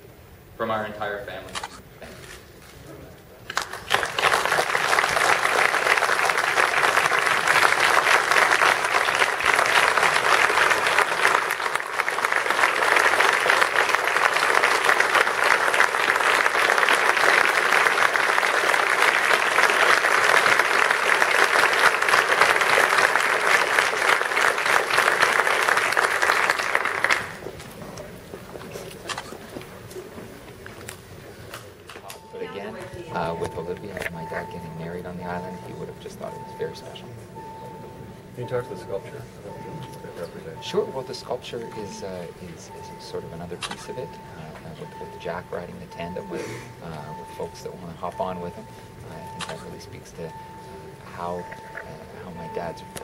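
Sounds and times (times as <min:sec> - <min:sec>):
crowd applauding: 0:03.5 - 0:28.1.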